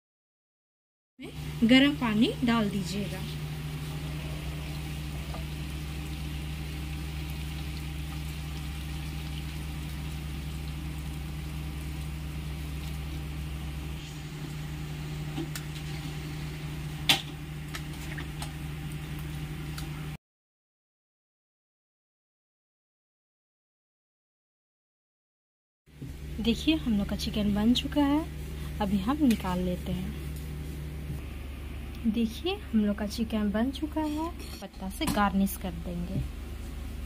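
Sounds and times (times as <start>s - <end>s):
curry sizzling and bubbling: 1.2s - 20.2s, 26.0s - 37.0s
steady low hum: 1.2s - 20.2s, 25.9s - 37.0s.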